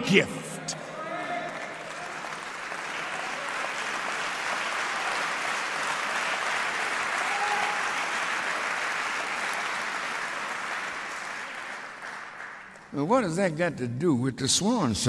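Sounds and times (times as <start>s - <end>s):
audience applauding: 1.3s - 13.0s.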